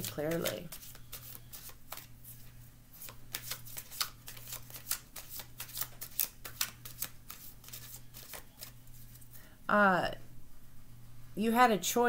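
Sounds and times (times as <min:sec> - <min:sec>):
cards shuffled by hand: 0:00.0 - 0:09.4
low steady hum: 0:00.0 - 0:12.0.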